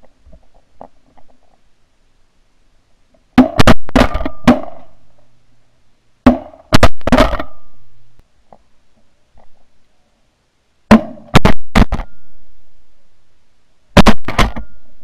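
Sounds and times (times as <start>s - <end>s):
shotgun blasts: 10.9s - 12.1s, 14.0s - 14.7s.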